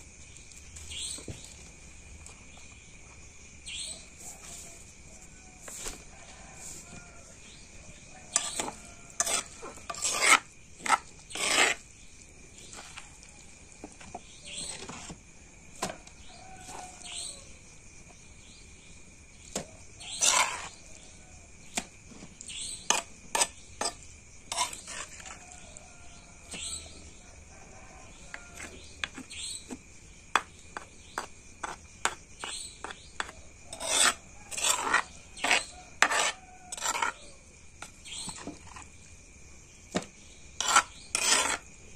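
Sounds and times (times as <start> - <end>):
stone pestle grinding corn: 8.3 - 11.8, 20.1 - 20.8, 22.8 - 25.4, 28.5 - 37.2, 40.6 - 41.7.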